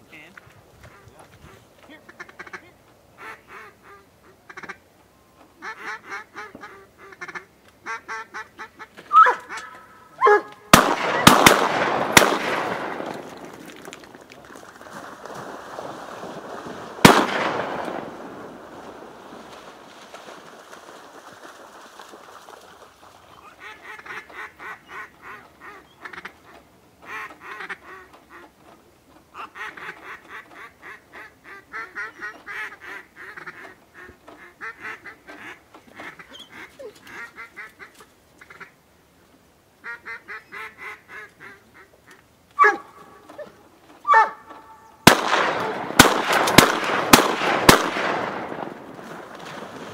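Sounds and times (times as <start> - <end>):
ducks quacking: 0.8 - 11.4, 23.3 - 38.8, 39.8 - 46.1
shotgun shot echoing: 10.7 - 13.8, 17.0 - 18.6, 45.0 - 49.2.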